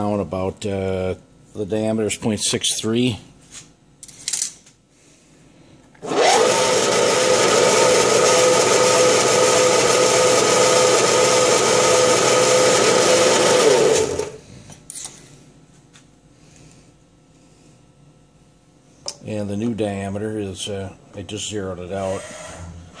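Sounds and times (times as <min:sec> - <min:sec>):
lathe motor whining: 0:06.0 - 0:14.4.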